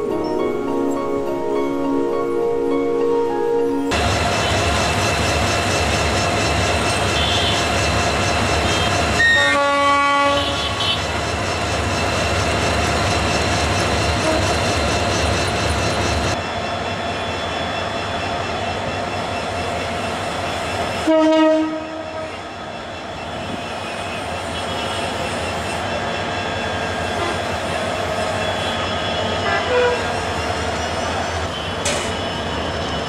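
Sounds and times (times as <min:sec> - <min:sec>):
diesel locomotive engine running: 0:03.9 - 0:33.0
locomotive horn blasts: 0:07.2 - 0:07.7, 0:08.6 - 0:11.0, 0:14.2 - 0:14.6, 0:21.0 - 0:22.4, 0:28.4 - 0:30.2.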